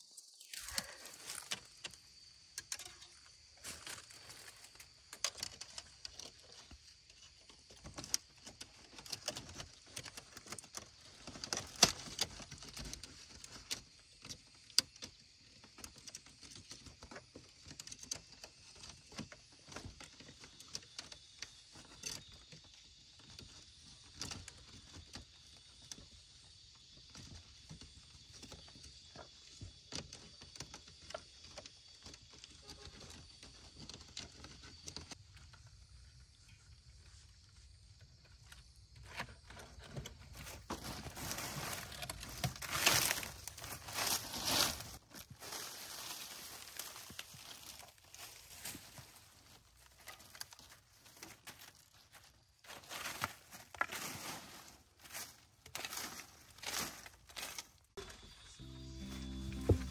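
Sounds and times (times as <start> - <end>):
high-pitched insect drone: 58.0 - 59.9.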